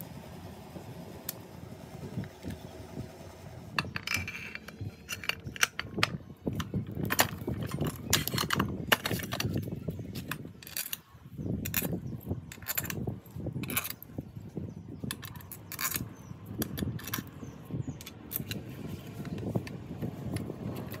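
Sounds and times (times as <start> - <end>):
metal parts and tools clinking: 3.8 - 21.0.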